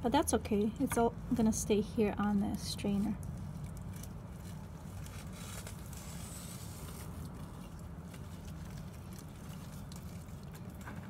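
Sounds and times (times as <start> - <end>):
wet clay squishing through mesh: 0.0 - 11.0.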